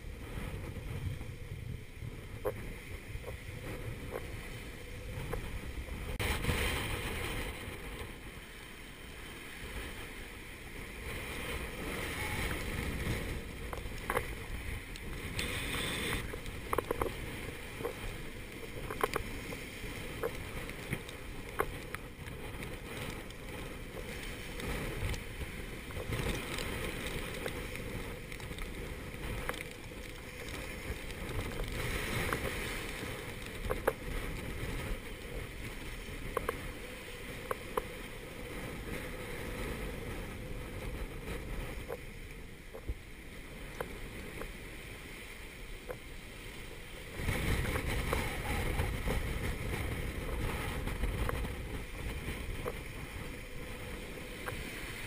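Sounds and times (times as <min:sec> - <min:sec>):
waves rushing past hull: 0:00.0 - 0:55.0
wind buffeting microphone: 0:00.0 - 0:55.0.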